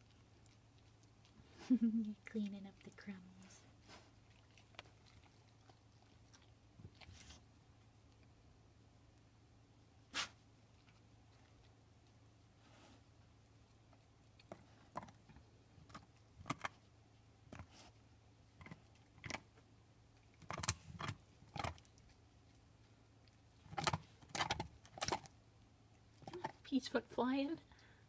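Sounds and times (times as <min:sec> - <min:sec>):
dog teeth cracking on bone: 0:14.4 - 0:16.8, 0:18.6 - 0:19.5, 0:20.2 - 0:22.2, 0:23.6 - 0:25.4.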